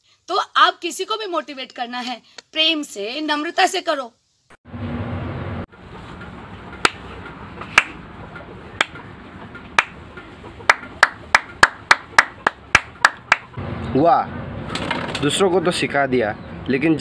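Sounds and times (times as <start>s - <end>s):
hand claps: 6.8s - 7.0s, 7.7s - 8.0s, 8.8s - 9.0s, 9.8s - 10.0s, 10.7s - 13.5s.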